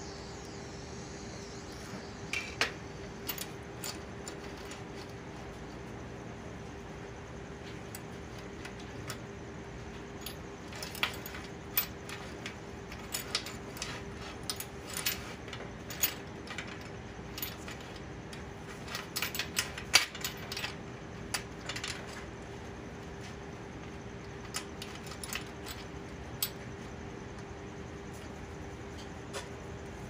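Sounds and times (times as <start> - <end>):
faint steady hum: 0.0 - 30.0
metal chain and rings clinking: 3.2 - 5.1, 10.2 - 18.0, 18.6 - 22.2, 24.4 - 26.6.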